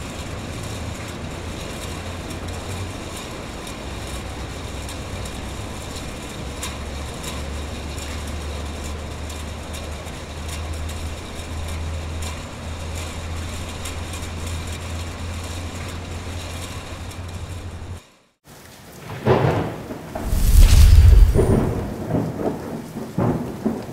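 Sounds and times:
noisy rumble: 0:20.2 - 0:22.2.

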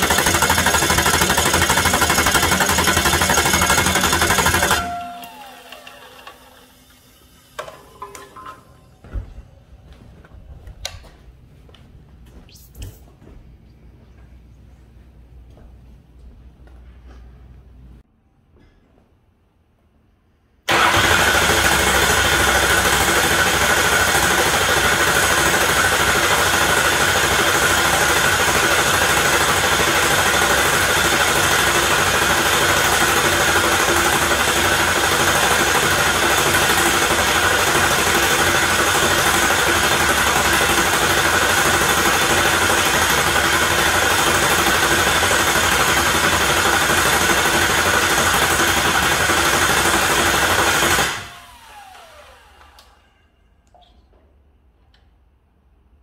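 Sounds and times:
diesel engine starter cranking: 0:00.0 - 0:07.3, 0:20.7 - 0:52.9.

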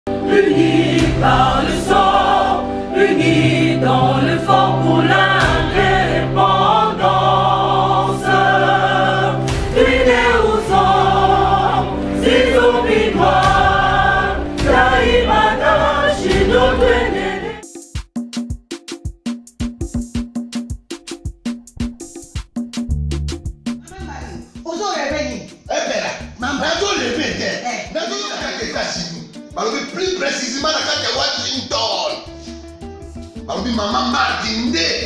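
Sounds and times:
choir singing gospel music: 0:00.1 - 0:17.7.

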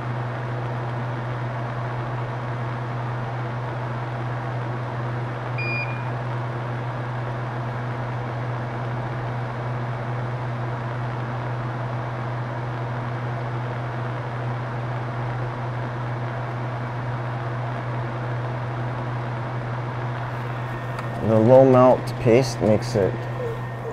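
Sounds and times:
extractor fan humming: 0:00.0 - 0:16.2, 0:16.8 - 0:23.9
short electronic beep: 0:05.6 - 0:06.1.

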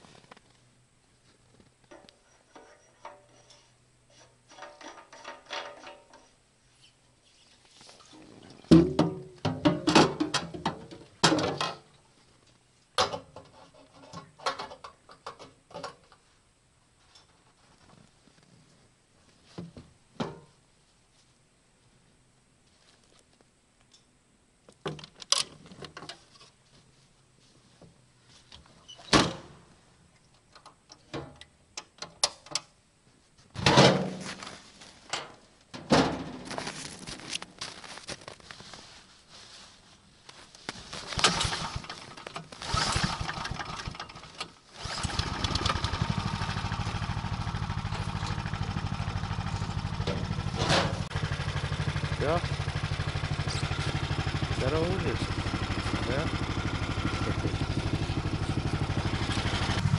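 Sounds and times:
footsteps crunching in snow: 0:36.4 - 0:41.2.

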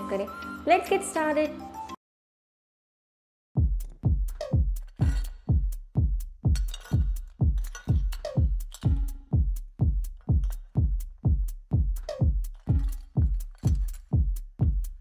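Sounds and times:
deep kick drum: 0:03.6 - 0:15.0
electronic music: 0:03.6 - 0:15.0.

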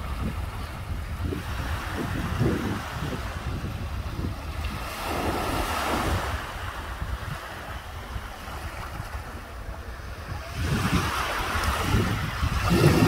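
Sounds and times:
small waves washing on shore: 0:00.0 - 0:13.0
wind rumbling on microphone: 0:00.0 - 0:13.0.

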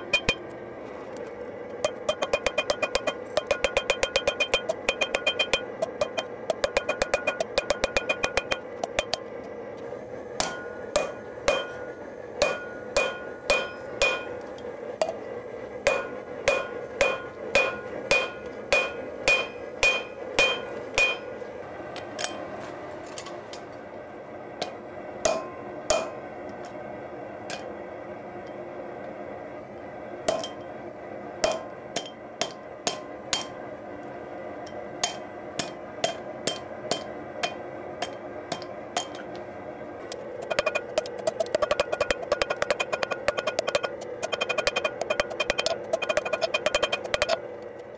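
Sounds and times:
hammer striking steel on anvil: 0:00.0 - 0:00.4, 0:01.8 - 0:09.3, 0:10.4 - 0:14.4, 0:15.8 - 0:21.3, 0:24.6 - 0:26.7, 0:30.3 - 0:30.7, 0:31.4 - 0:33.6, 0:34.7 - 0:39.3, 0:40.4 - 0:47.4.

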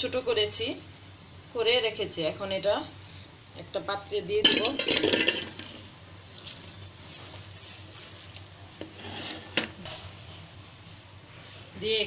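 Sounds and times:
fruit clattering into metal pot: 0:04.4 - 0:05.7
fruit scraping against metal: 0:06.9 - 0:09.8.

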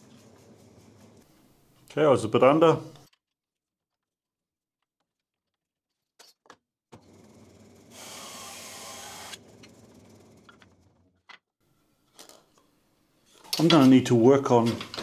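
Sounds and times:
bandsaw running hum: 0:07.0 - 0:11.0
bandsaw cutting wood: 0:07.9 - 0:09.8.

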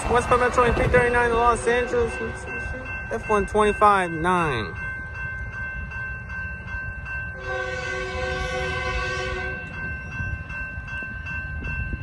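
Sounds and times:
crossing warning bell ringing: 0:00.0 - 0:12.0
train horn chord: 0:07.4 - 0:09.7.

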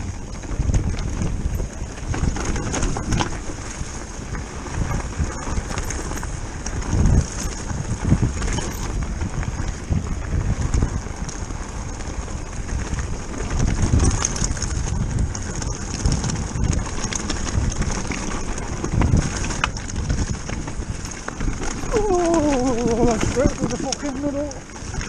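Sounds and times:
bike rattling and knocking: 0:00.0 - 0:25.0
wind buffeting microphone: 0:00.0 - 0:25.0
tyres crunching over stones: 0:00.2 - 0:25.0.

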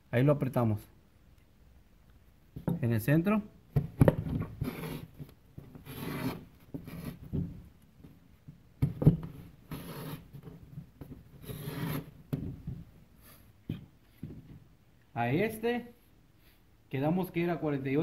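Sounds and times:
pencil scraping on drywall paper: 0:04.6 - 0:07.2, 0:09.6 - 0:10.6, 0:11.3 - 0:12.2.

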